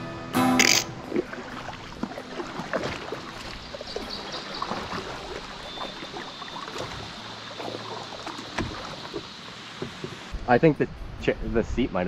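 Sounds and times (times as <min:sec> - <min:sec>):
water lapping around canoe: 0:00.9 - 0:10.4.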